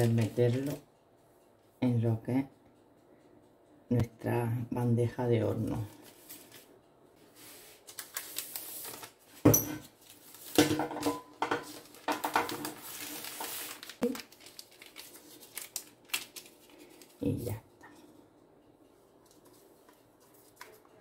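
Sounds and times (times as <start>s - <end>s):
baking paper rustling: 0.0s - 0.8s, 5.7s - 17.6s, 19.3s - 21.0s.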